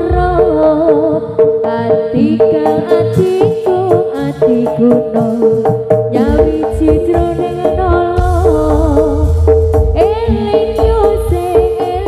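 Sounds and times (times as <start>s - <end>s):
hand drums beating quickly: 0.0s - 12.0s
deeper drum strokes: 4.5s - 12.0s
steady held note: 8.2s - 11.1s.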